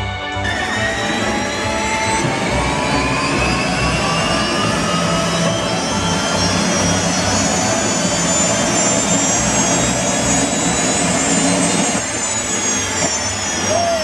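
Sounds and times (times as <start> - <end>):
high turbine whine: 0.0 - 14.0
steady rush of noise: 0.4 - 14.0.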